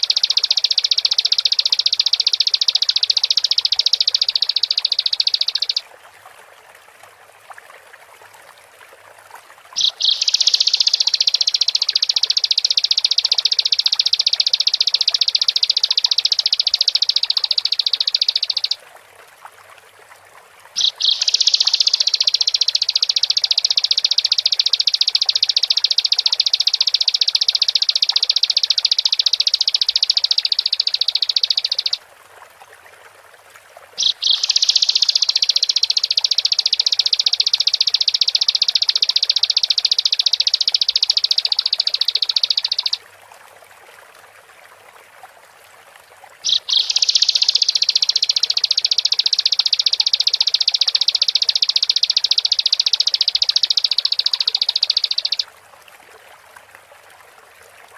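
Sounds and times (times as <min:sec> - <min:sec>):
bird singing high trills: 0:00.0 - 0:05.8, 0:09.8 - 0:18.8, 0:20.8 - 0:32.0, 0:34.0 - 0:43.0, 0:46.4 - 0:55.4.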